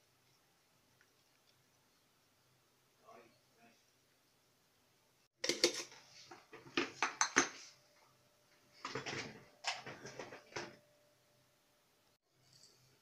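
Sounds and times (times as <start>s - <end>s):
kitchen utensils clattering: 8.8s - 10.8s.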